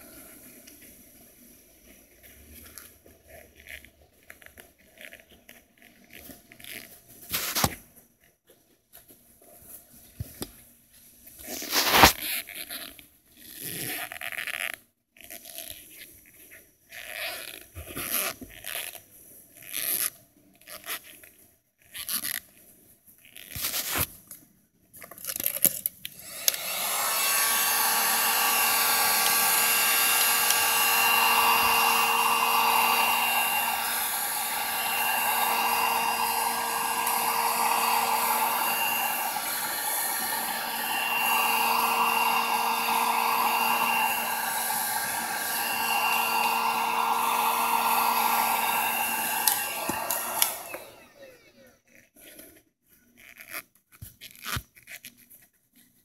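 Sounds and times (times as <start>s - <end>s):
heat gun fan whining: 26.2s - 51.7s.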